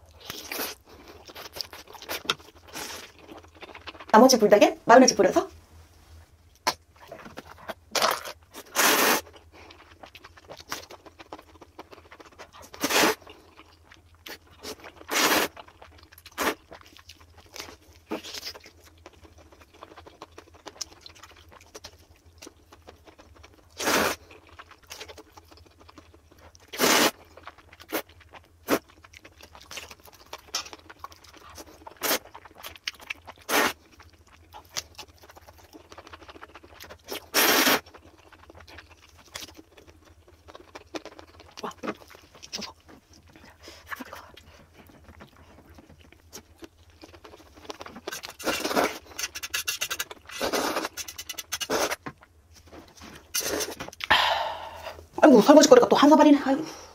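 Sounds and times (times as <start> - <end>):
chewing: 0.0 - 4.1, 6.5 - 54.2
loud slurps and bites: 7.9 - 9.3, 14.6 - 15.6, 26.7 - 27.2, 37.1 - 37.9.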